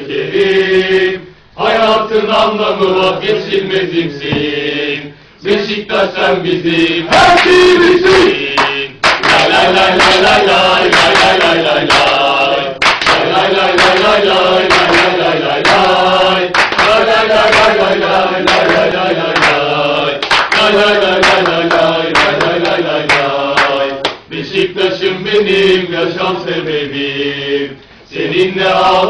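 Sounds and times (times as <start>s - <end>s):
men chanting in unison: 0.0s - 29.0s
hand claps: 7.2s - 24.2s.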